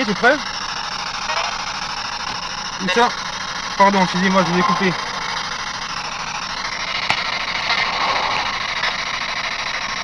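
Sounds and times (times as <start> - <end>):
radio static hiss: 1.2 - 1.7, 2.8 - 3.2, 3.8 - 5.6.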